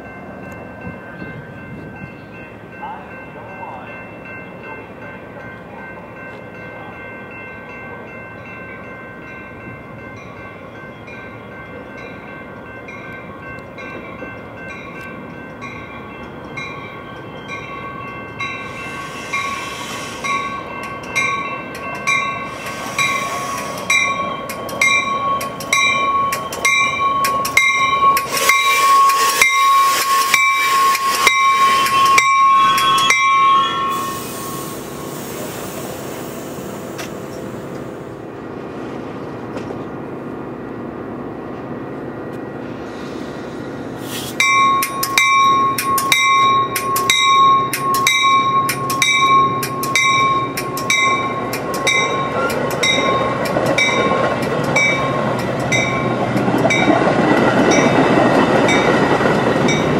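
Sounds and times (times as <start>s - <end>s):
train bell dinging: 0.0s - 38.2s, 43.8s - 59.9s
high brake squeal: 18.6s - 20.7s, 22.2s - 24.4s, 28.2s - 37.0s
train wheels clacking over rail joints: 44.2s - 59.9s.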